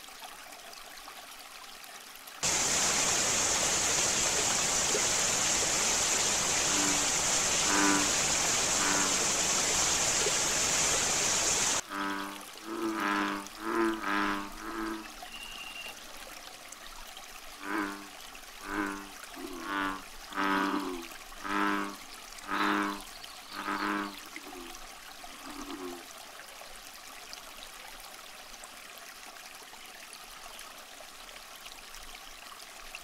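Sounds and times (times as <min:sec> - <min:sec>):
water rushing and splashing: 0:02.4 - 0:28.6.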